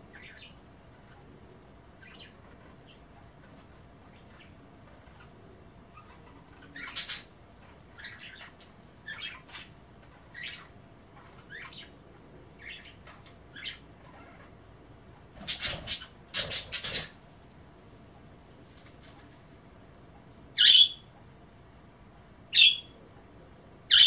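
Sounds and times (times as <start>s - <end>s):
budgerigars chirping: 0.1s - 0.6s, 2.0s - 11.9s, 12.6s - 14.5s, 15.4s - 17.2s, 20.6s - 21.1s, 22.5s - 23.0s.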